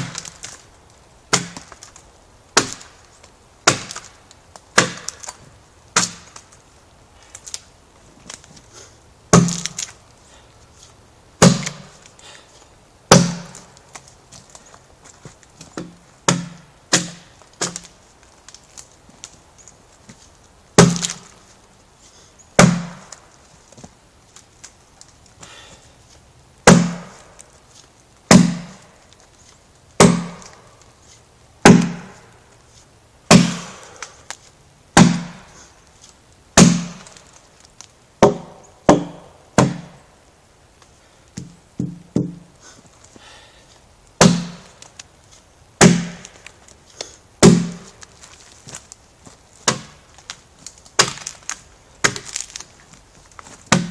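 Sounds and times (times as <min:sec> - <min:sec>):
adze chopping into log: 0:01.3 - 0:01.9, 0:02.6 - 0:02.9, 0:03.6 - 0:04.1, 0:04.8 - 0:05.4, 0:06.0 - 0:06.4, 0:09.3 - 0:09.9, 0:11.4 - 0:11.9, 0:13.1 - 0:13.7, 0:15.8 - 0:17.9, 0:20.8 - 0:21.3, 0:22.6 - 0:23.2, 0:26.6 - 0:27.2, 0:28.3 - 0:28.8, 0:30.0 - 0:30.6, 0:31.6 - 0:32.2, 0:33.3 - 0:34.1, 0:35.0 - 0:35.4, 0:36.6 - 0:37.2, 0:38.2 - 0:40.0, 0:44.2 - 0:44.8, 0:45.8 - 0:46.4, 0:47.4 - 0:47.9, 0:49.6 - 0:50.0, 0:51.0 - 0:52.6, 0:53.7 - 0:53.9.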